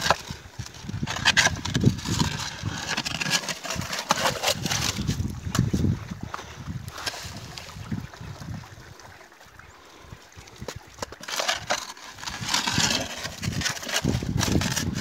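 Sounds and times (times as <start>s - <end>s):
stones scraping against metal: 0.0s - 5.7s, 10.6s - 15.0s.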